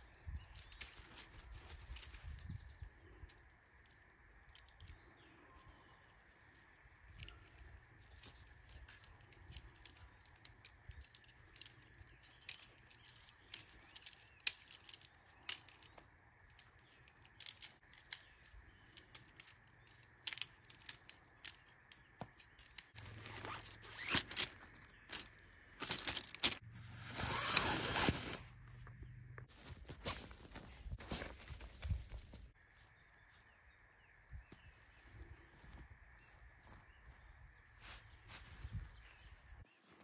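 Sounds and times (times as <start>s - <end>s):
rustling and scraping: 8.1s - 32.6s.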